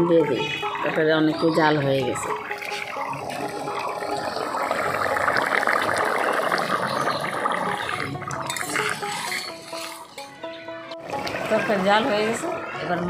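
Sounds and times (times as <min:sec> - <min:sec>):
curry bubbling in metal pot: 0:02.1 - 0:10.4.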